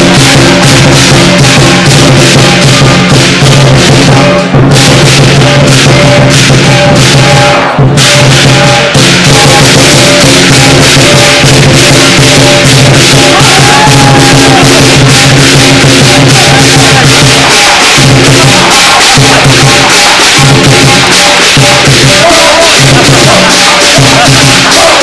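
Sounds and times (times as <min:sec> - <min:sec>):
big drum beating: 0:00.0 - 0:25.0
cymbals clashing: 0:00.0 - 0:25.0
gong: 0:00.0 - 0:25.0.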